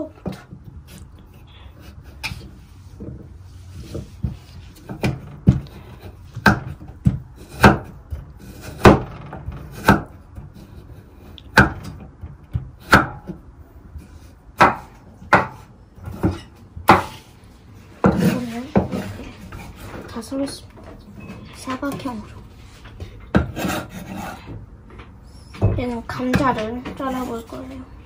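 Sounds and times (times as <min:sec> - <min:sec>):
knife chopping on cutting board: 0:04.2 - 0:09.0, 0:09.7 - 0:10.8, 0:11.5 - 0:13.4, 0:14.6 - 0:17.2.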